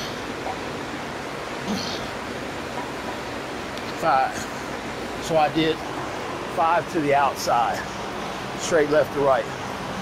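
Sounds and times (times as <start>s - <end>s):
steady background rush: 0.0s - 10.0s.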